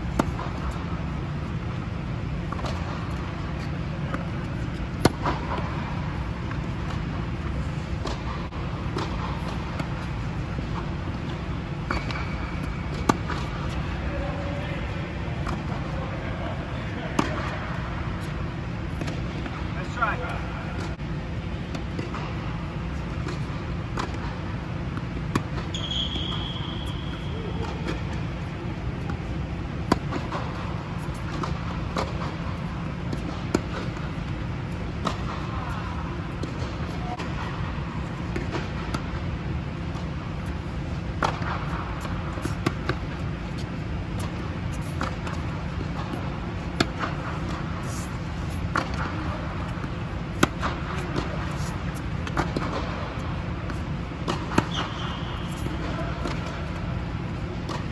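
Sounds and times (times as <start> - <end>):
steady low hum: 0.0 - 57.9
tennis ball struck by racket: 0.1 - 0.7, 2.5 - 7.4, 8.0 - 13.8, 17.2 - 17.6, 24.9 - 25.8, 26.8 - 32.4, 33.0 - 37.6, 38.2 - 39.2, 39.9 - 57.9
ball bouncing on hard court: 2.4 - 14.8, 17.0 - 17.6, 23.2 - 39.2, 39.9 - 57.9
high shoe squeak: 11.9 - 12.8, 25.7 - 27.6, 54.6 - 56.1.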